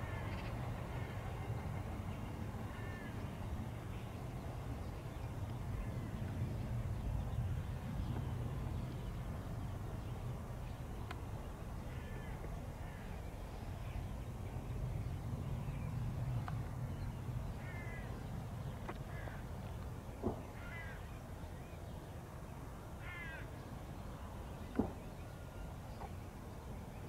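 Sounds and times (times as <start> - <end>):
steady low rumble: 0.0 - 21.8
crows cawing: 2.7 - 3.1, 11.9 - 13.1, 17.6 - 18.1, 19.1 - 19.4, 20.6 - 21.0, 23.0 - 23.5.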